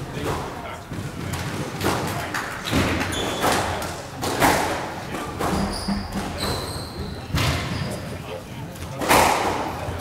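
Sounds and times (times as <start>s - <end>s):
shoe squeak on wooden floor: 3.1s - 3.6s, 5.5s - 8.2s.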